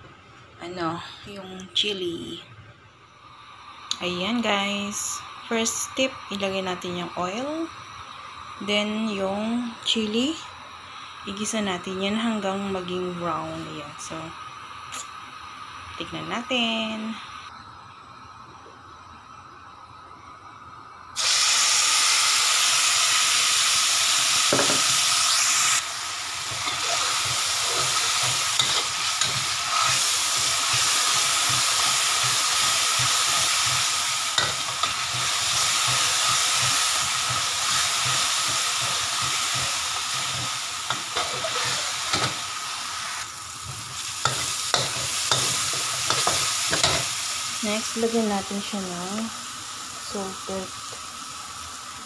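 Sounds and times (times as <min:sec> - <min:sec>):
chili paste sizzling in hot oil: 0:21.2 - 0:52.0
spatula scraping a wok: 0:26.4 - 0:42.4, 0:43.6 - 0:47.1.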